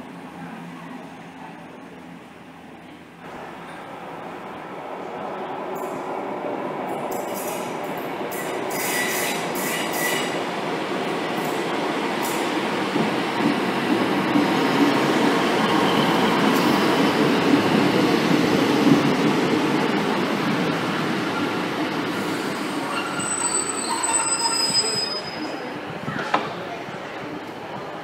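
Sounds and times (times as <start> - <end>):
train wheels and engines rumbling: 0.0 - 28.0
high brake squeal: 8.4 - 10.4, 22.2 - 25.7.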